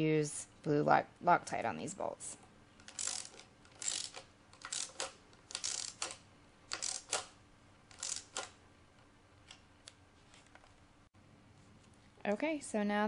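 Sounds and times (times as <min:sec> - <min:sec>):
socket ratchet clicking: 0:02.8 - 0:08.6.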